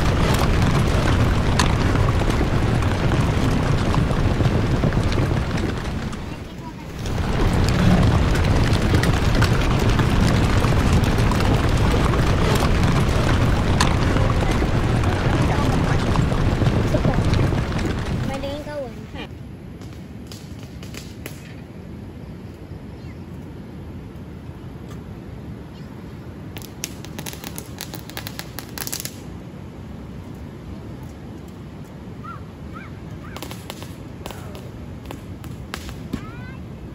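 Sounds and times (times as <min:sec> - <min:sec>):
firecrackers popping: 0:00.0 - 0:19.1, 0:19.7 - 0:21.6, 0:26.4 - 0:29.4, 0:33.2 - 0:36.6
low rumble: 0:00.0 - 0:19.3
rain on a canvas tent: 0:00.0 - 0:19.3, 0:26.5 - 0:29.3.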